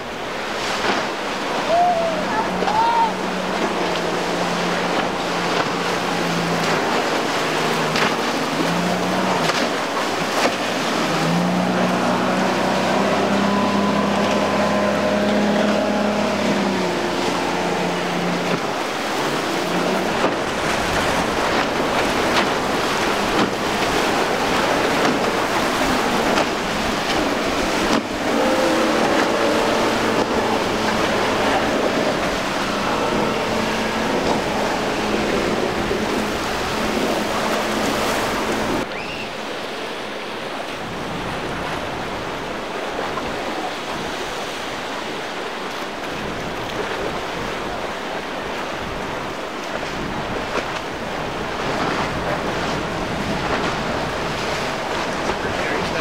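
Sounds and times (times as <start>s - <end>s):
outboard motor at speed: 0.0s - 56.0s
spray and waves: 0.0s - 56.0s
wind: 0.0s - 56.0s.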